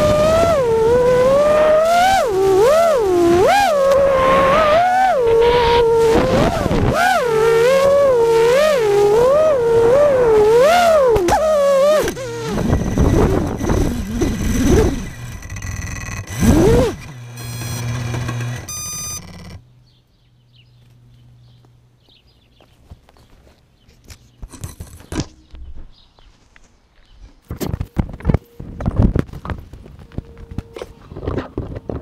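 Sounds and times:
rough noise: 0:00.0 - 0:19.6
electric motors whining: 0:00.0 - 0:19.7
low hum: 0:00.0 - 0:22.1.

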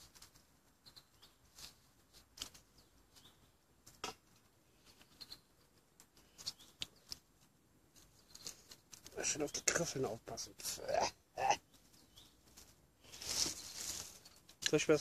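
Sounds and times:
sticks crackling in stove: 0:00.0 - 0:15.0.

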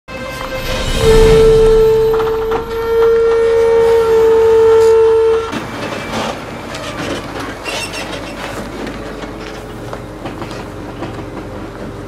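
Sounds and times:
loud steady held tone: 0:00.1 - 0:05.6
log truck rattling on rough track: 0:01.7 - 0:12.0.

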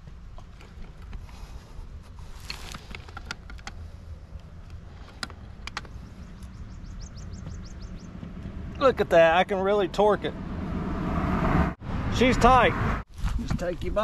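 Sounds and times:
steady low rumble: 0:03.7 - 0:14.0.

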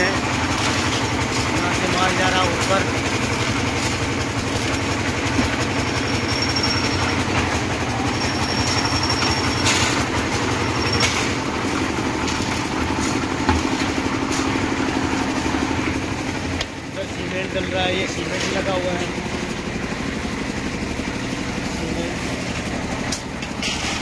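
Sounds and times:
concrete mixer engine running: 0:00.0 - 0:24.0
drum churning gravel rattle: 0:00.0 - 0:24.0.

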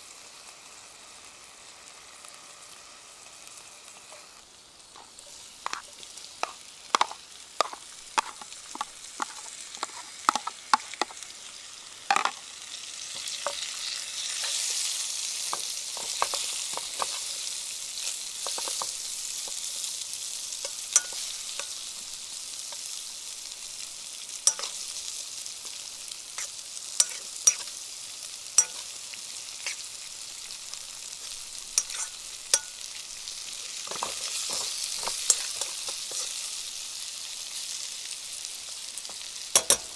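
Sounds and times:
food sizzling in a frying pan: 0:00.0 - 0:39.9
utensil scraping a pan: 0:05.0 - 0:10.9, 0:13.2 - 0:19.7, 0:26.4 - 0:27.8, 0:31.2 - 0:32.7, 0:33.7 - 0:36.5.

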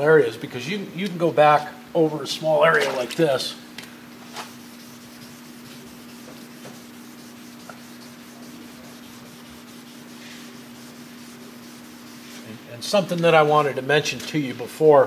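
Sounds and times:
steady low hum: 0:00.0 - 0:15.0
wet sandpaper rubbing on paint: 0:04.2 - 0:13.0.

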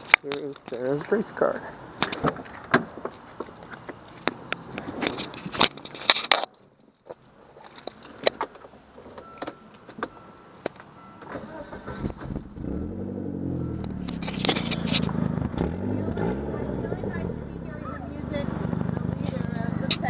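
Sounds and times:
keys jangling: 0:05.1 - 0:08.4
car engine starting and revving: 0:11.3 - 0:20.0.

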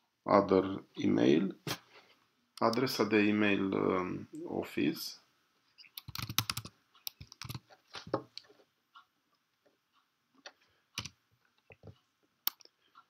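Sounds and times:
computer keys and mouse clicking: 0:05.8 - 0:07.7, 0:10.4 - 0:12.7.

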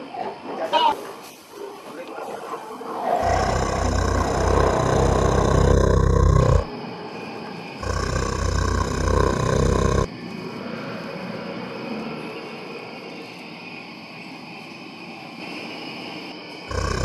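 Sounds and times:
deep dinosaur roar: 0:03.0 - 0:06.7, 0:07.8 - 0:10.1, 0:16.7 - 0:17.0.

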